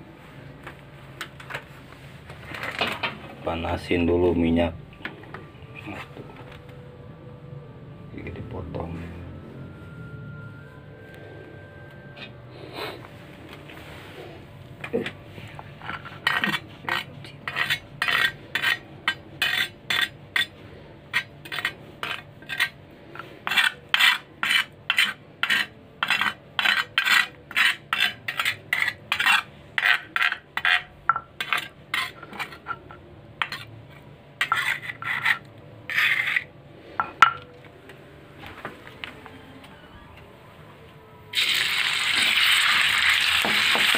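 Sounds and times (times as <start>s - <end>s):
spatula scraping stone mortar: 15.8s - 32.8s, 33.4s - 33.7s, 34.4s - 36.5s.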